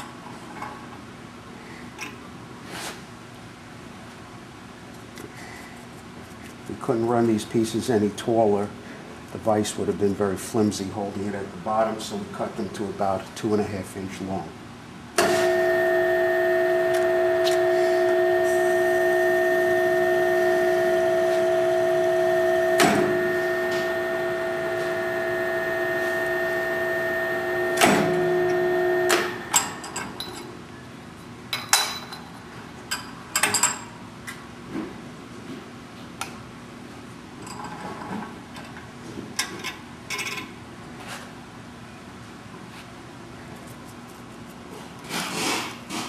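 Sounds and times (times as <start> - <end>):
drill press motor humming: 15.2 - 29.6.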